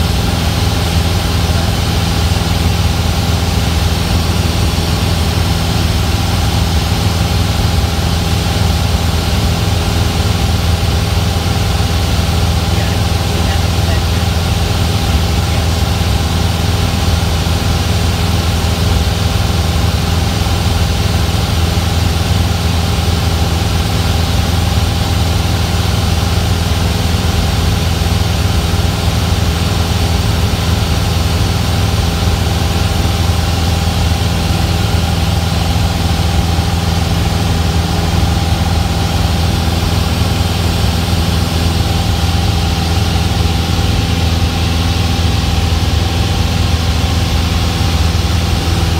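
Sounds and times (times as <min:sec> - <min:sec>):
propeller plane engine droning: 0:00.0 - 0:48.9.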